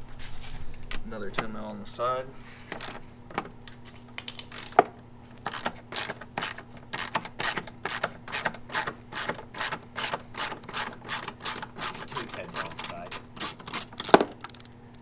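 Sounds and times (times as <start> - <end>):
socket ratchet pawl clicking: 4.2 - 4.8, 5.4 - 14.8.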